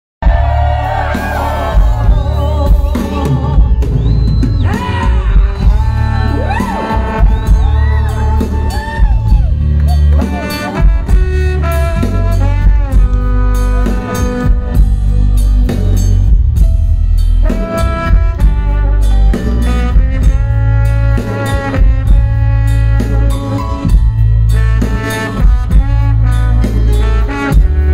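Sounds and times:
bass guitar: 0.2s - 27.9s
brass: 0.2s - 27.9s
drums: 0.2s - 27.9s
woman singing: 1.2s - 7.0s.

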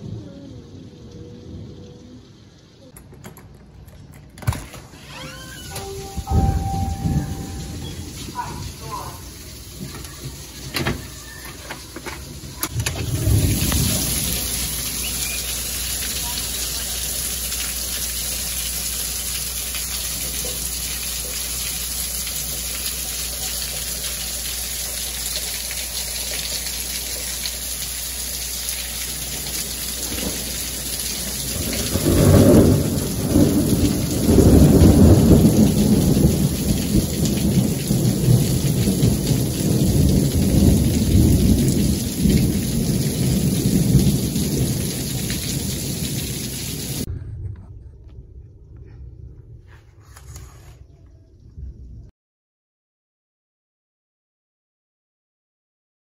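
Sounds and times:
thunder rumbling: 0.0s - 4.7s, 5.6s - 17.6s, 28.9s - 50.1s
heavy rain pouring: 0.0s - 47.1s
runoff streaming off roof: 0.0s - 47.1s.

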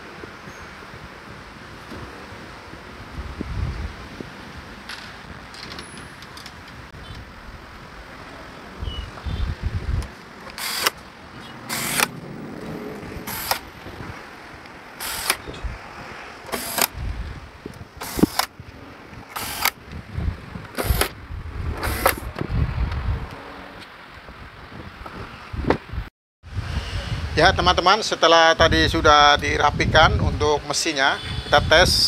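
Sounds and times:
electric screwdriver whirring: 10.5s - 11.0s, 11.7s - 12.1s, 13.2s - 13.7s, 15.0s - 15.4s, 16.5s - 17.0s, 18.0s - 18.5s, 19.3s - 19.8s, 20.8s - 21.2s, 21.8s - 22.3s.

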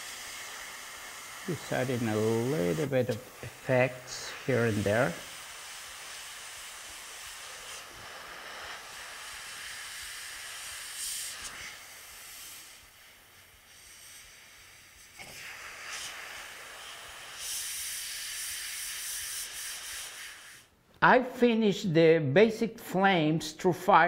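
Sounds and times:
airbrush hissing: 0.0s - 20.8s.

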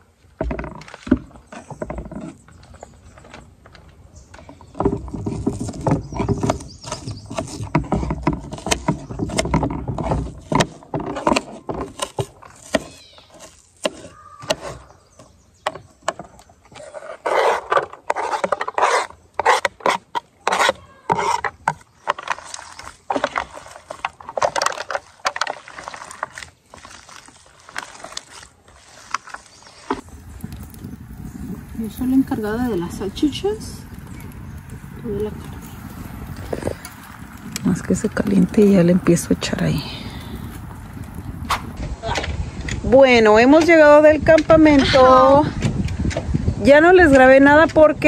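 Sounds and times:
knife scraping across a board: 5.0s - 15.0s, 16.7s - 30.0s.

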